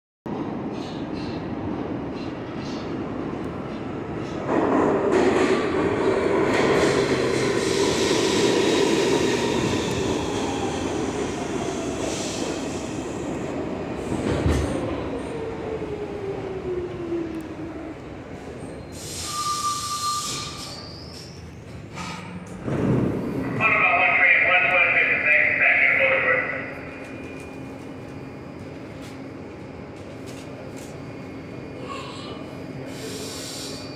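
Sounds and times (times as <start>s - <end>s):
subway train rumble: 0.3s - 33.9s
wheels squealing on rails: 18.5s - 22.2s, 30.3s - 33.9s.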